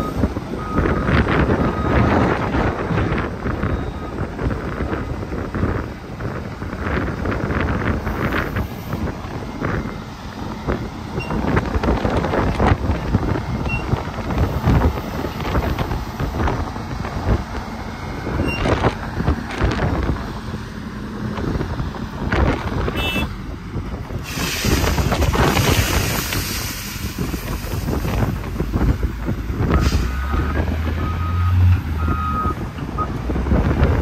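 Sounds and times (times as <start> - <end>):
truck reversing alarm beeping: 0.0 - 4.6, 8.1 - 15.3, 17.2 - 19.2, 28.8 - 33.2
heavy truck engine running: 0.0 - 34.0
wind buffeting microphone: 0.0 - 34.0.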